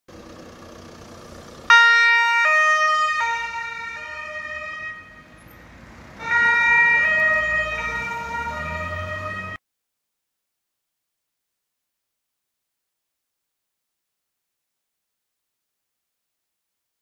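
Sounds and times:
two-tone police siren: 1.7 - 5.4, 6.2 - 9.6.

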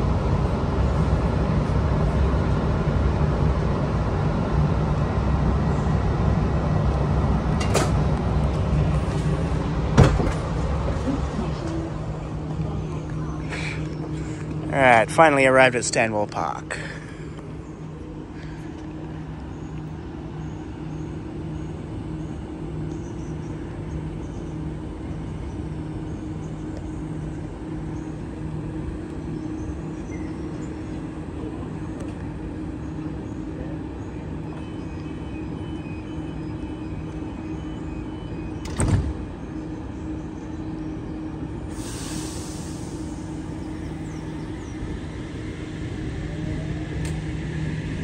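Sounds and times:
train equipment pulsing hum: 0.0 - 48.0
train doors closing knock: 7.5 - 11.0, 38.5 - 39.3.

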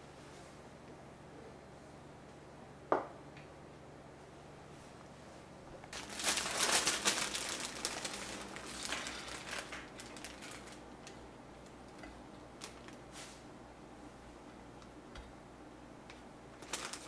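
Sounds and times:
plastic bag crinkling: 5.9 - 13.1, 16.6 - 17.0.

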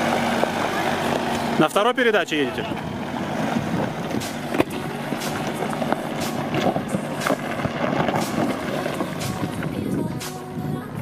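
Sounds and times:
tyres crunching over gravel: 0.0 - 10.9
car engine under load: 0.0 - 11.0
stones popping under tyres: 3.2 - 10.4.

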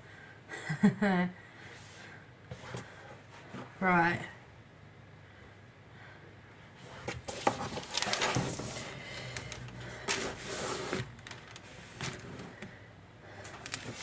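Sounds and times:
paper rustling: 7.0 - 12.6, 13.4 - 14.0.

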